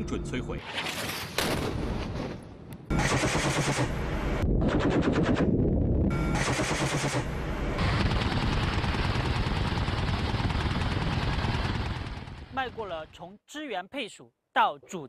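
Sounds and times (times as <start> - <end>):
automatic cannon fire: 0.8 - 5.6, 6.3 - 12.5.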